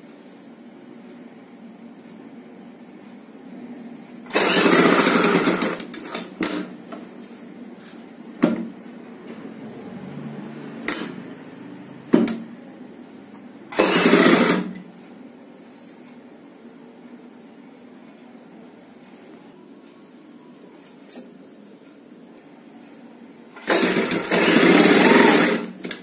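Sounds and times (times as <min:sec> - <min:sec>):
sewing machine stitching: 0:04.3 - 0:06.7, 0:10.8 - 0:11.2, 0:13.7 - 0:14.8, 0:23.6 - 0:26.0.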